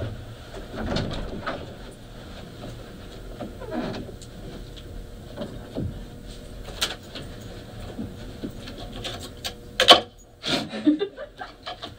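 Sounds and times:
scattered clicks and knocks: 0:11.4 - 0:11.9.

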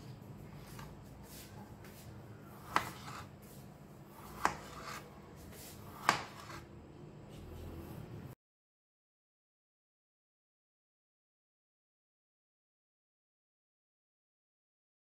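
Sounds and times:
faint rubbing and scraping: 0:00.0 - 0:08.3.

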